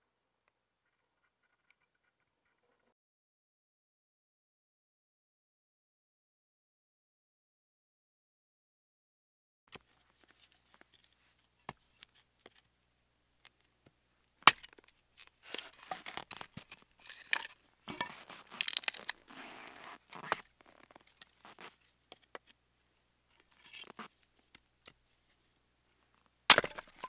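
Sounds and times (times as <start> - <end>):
wood cracking and splintering: 15.5 - 19.3, 26.5 - 27.0
hatchet striking log: 26.5 - 27.0.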